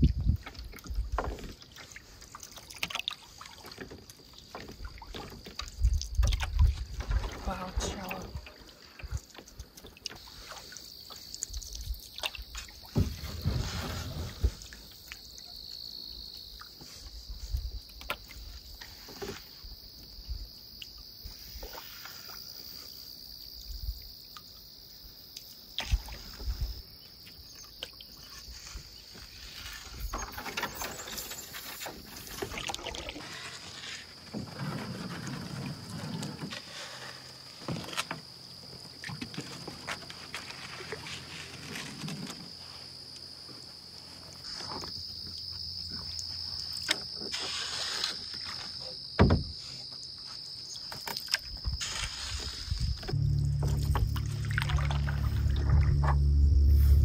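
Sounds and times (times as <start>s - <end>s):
paddle strokes in water: 0.1s - 11.5s, 25.8s - 42.8s, 51.0s - 57.0s
paddle knocking canoe hull: 49.2s - 49.6s
high-pitched hum: 53.1s - 57.0s.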